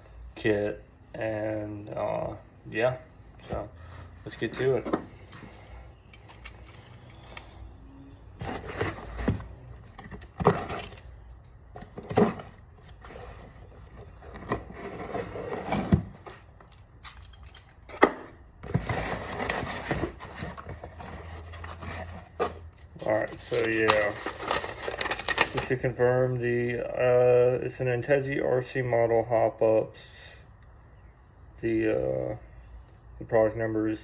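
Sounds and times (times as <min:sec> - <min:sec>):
cardboard rustling: 0:08.4 - 0:16.6, 0:18.6 - 0:25.7
cardboard box scrapes and knocks: 0:12.0 - 0:16.4.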